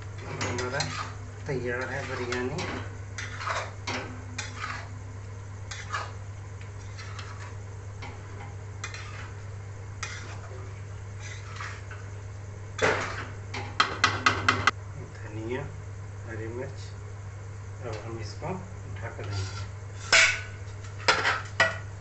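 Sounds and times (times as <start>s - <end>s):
rice stirred in steel pan: 0.0s - 14.1s
metal scraping and clinking on pan: 0.2s - 1.2s, 1.8s - 4.9s, 6.8s - 9.4s.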